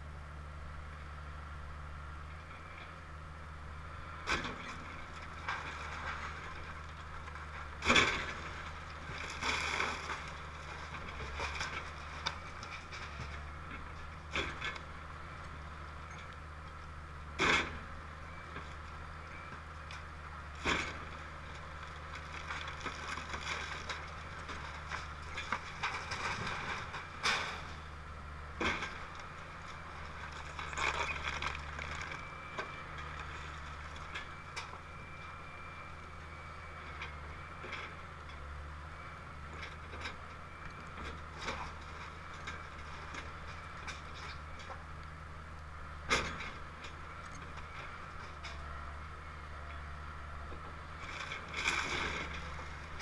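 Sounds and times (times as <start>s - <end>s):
excavator diesel engine running: 0.0s - 53.0s
breaking timber cracks and crashes: 4.3s - 14.9s, 20.5s - 27.8s, 28.5s - 34.7s, 51.0s - 53.0s.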